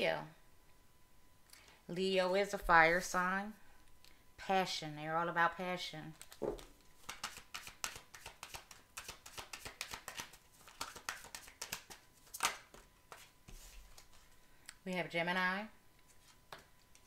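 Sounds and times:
cards shuffled by hand: 6.2s - 14.2s.

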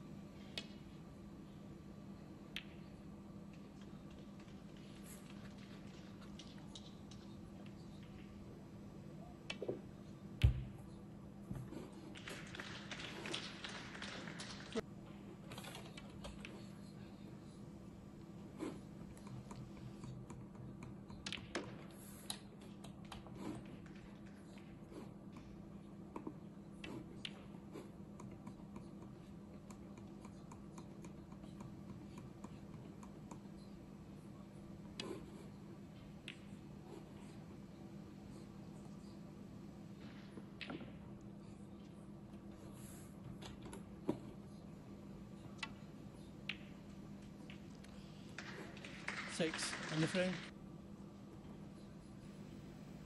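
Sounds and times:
faint steady hum: 0.0s - 53.0s.

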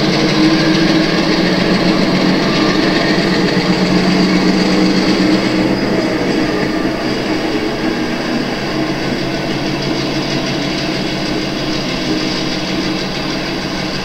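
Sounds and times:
model locomotive engine rolling: 0.0s - 14.0s.

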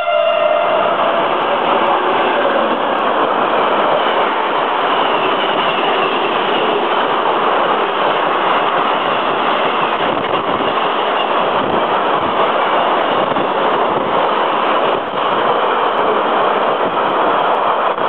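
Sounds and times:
freight train passing: 0.0s - 18.0s.

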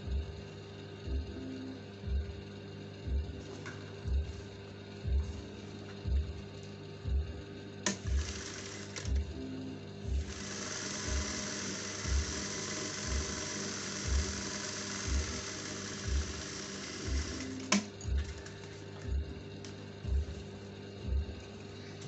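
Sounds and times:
background music with low thump: 0.0s - 22.0s
sewing machine running: 7.8s - 9.4s, 10.1s - 18.7s.

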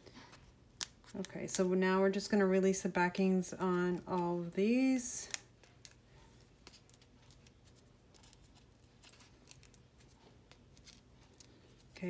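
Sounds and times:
faint clicks and crinkles: 5.1s - 12.0s.

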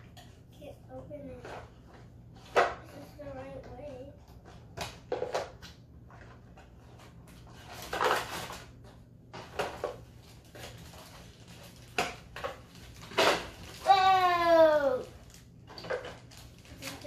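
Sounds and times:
plastic bag rustling: 6.1s - 17.0s.

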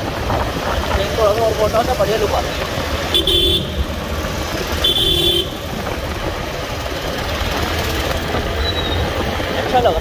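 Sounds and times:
motorcycle engine: 0.0s - 10.0s
vehicle horn honks: 3.1s - 3.8s, 4.8s - 5.6s.

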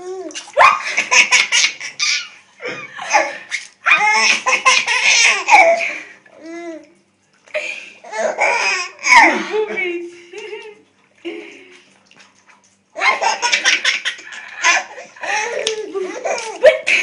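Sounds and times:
baby laughing: 0.8s - 2.4s, 3.0s - 5.8s, 13.0s - 17.0s.

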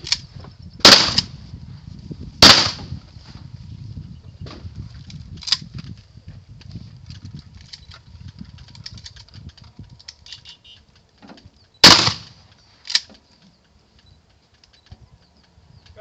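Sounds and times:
wind rumble on microphone: 0.0s - 12.6s, 14.8s - 16.0s
shotgun bang: 0.8s - 1.3s, 2.4s - 2.9s, 11.8s - 12.4s
light clicks: 12.4s - 16.0s.

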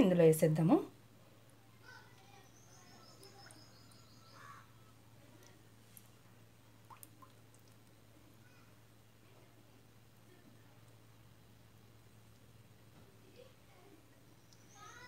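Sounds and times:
faint low hum: 0.0s - 15.0s
faint high chirping trill: 1.8s - 5.5s, 14.2s - 15.0s.

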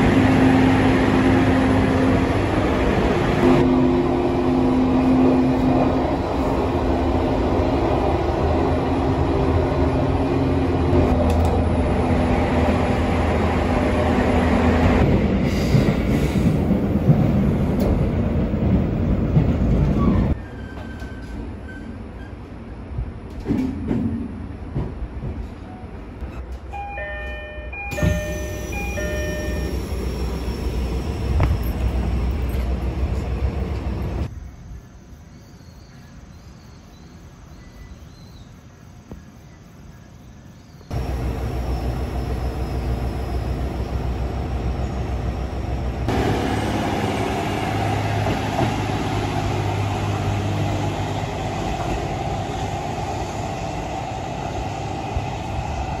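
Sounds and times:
train wheel noise: 0.0s - 34.3s, 40.9s - 56.0s
diesel railcar engine rumble: 0.0s - 34.7s, 40.9s - 56.0s.

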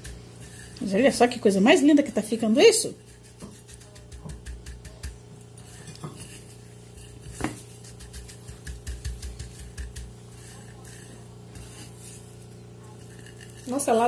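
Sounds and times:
breadcrumbs crackling and rubbing: 0.0s - 14.0s.

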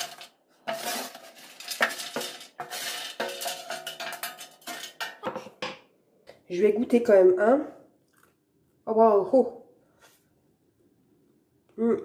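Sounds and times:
chickpeas rattling on metal tray: 0.0s - 5.3s.

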